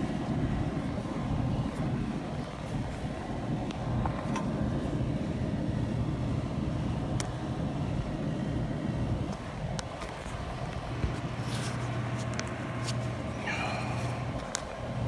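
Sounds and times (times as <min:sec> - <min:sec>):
blower rushing air: 0:00.0 - 0:15.0.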